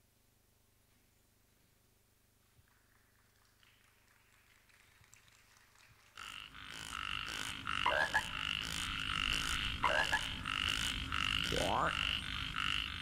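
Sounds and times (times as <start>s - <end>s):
frog-like croaking effects: 6.2s - 13.0s
short rising croaks: 6.2s - 13.0s.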